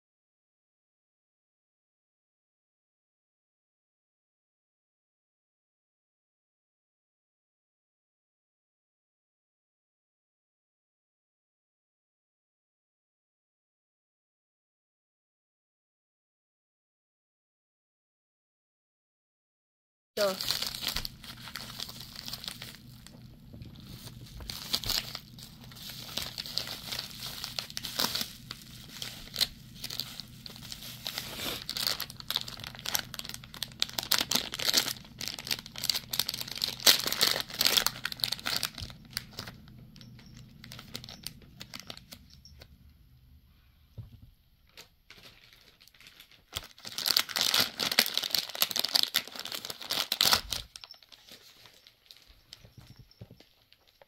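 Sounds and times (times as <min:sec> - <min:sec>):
plastic bags crinkling and tearing: 0:20.2 - 0:42.4, 0:44.7 - 0:52.7.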